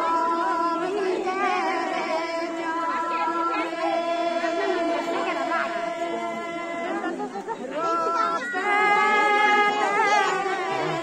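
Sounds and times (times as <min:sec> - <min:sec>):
group singing in unison: 0:00.0 - 0:11.0
people talking: 0:00.0 - 0:11.0.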